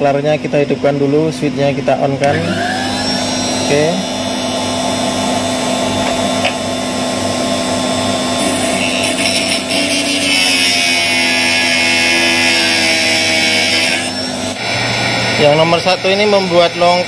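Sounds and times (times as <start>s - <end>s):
motor humming: 2.2s - 15.4s.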